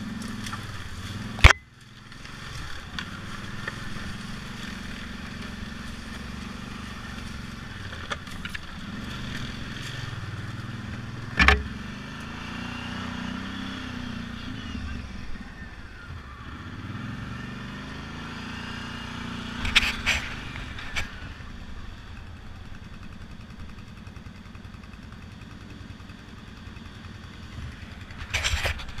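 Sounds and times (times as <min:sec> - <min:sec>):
atv engine running: 0:00.0 - 0:29.0
sharp knocks: 0:11.4 - 0:11.8.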